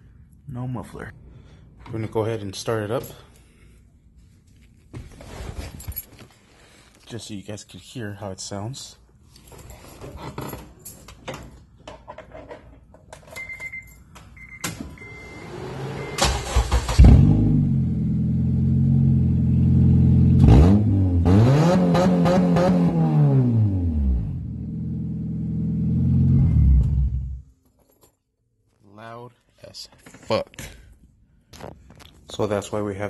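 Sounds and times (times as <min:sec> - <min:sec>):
car engine cranking and idling: 0:15.2 - 0:21.3
car engine revving: 0:15.4 - 0:27.4.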